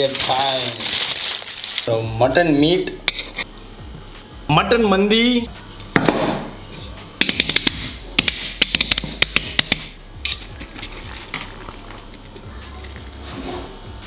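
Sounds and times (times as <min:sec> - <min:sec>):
hands slapping clay pot: 0:07.2 - 0:09.9.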